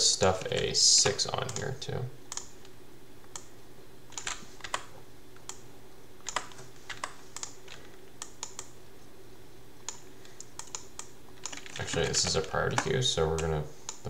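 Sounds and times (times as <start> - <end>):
faint low hum: 0.0 - 14.0
computer mouse clicks: 2.3 - 3.5, 4.1 - 5.6, 6.2 - 8.8, 9.8 - 14.0.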